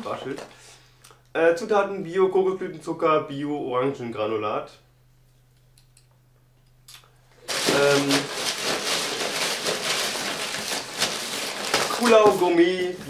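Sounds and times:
paper packing material rustling: 7.4s - 13.0s.

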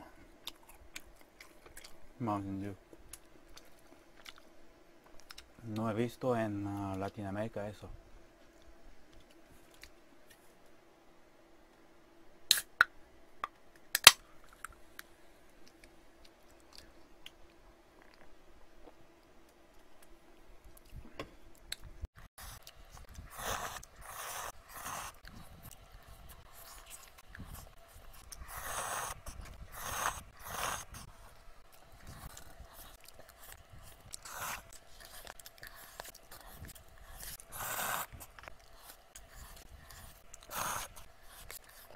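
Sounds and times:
chewing: 21.6s - 41.9s
person slurping noodles: 23.2s - 25.4s, 26.6s - 31.0s, 33.9s - 34.7s, 37.2s - 41.0s.

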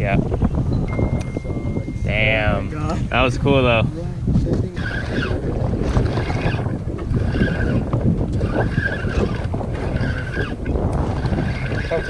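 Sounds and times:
wind buffeting microphone: 0.0s - 12.0s
water lapping at boat hull: 4.8s - 12.0s.

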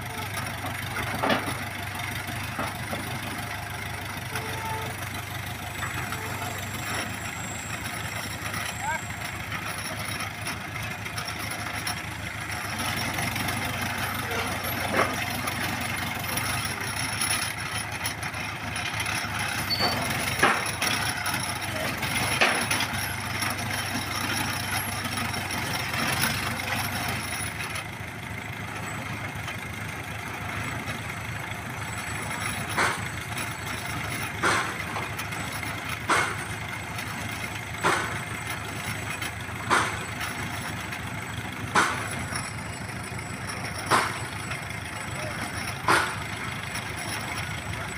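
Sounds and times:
winch engine running: 0.0s - 47.9s
sharp metal clanks: 13.6s - 27.8s, 31.9s - 47.9s.

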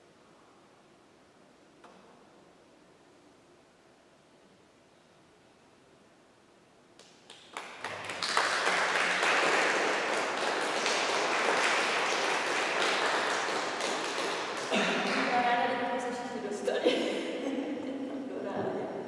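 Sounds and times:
audience clapping: 7.0s - 16.1s.

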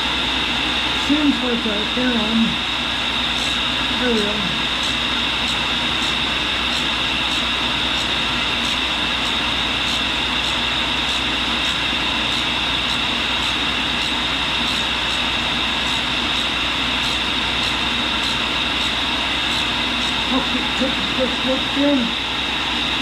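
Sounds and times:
grinder hum and whine: 0.0s - 23.0s
dust vacuum drawing: 3.2s - 21.6s.

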